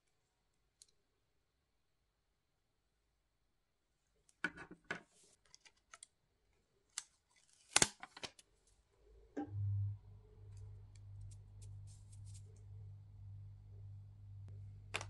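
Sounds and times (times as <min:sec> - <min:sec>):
low steady hum: 0:09.1 - 0:15.0
paper crinkling: 0:11.2 - 0:12.6.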